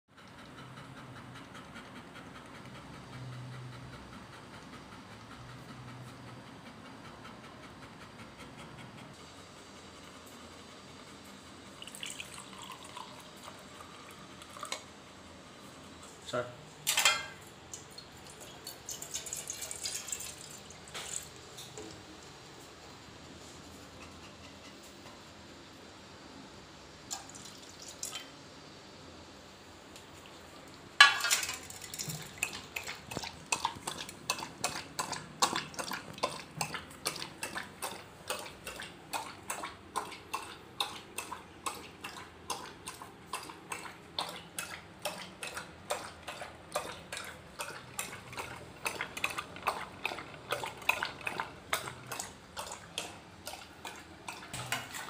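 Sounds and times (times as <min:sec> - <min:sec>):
dog lapping water from metal bowl: 0:11.8 - 0:14.9, 0:16.9 - 0:22.0, 0:30.5 - 0:55.0
metal bowl clanking on tiled floor: 0:16.9 - 0:17.4, 0:31.0 - 0:36.8.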